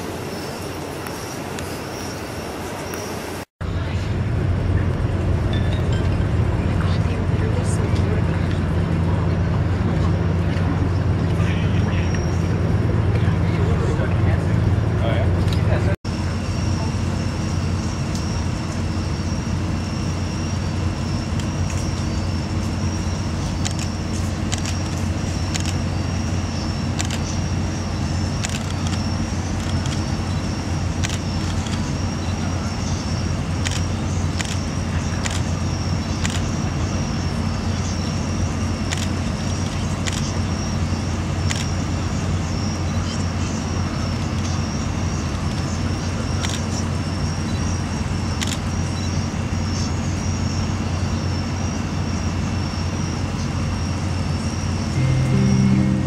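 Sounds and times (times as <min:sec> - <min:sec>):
distant city traffic rumble: 0:00.0 - 0:47.0
faint high whine: 0:16.1 - 0:56.0.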